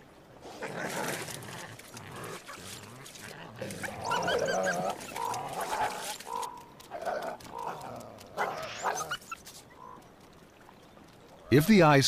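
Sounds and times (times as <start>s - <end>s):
coyotes snarling: 0.4s - 10.0s.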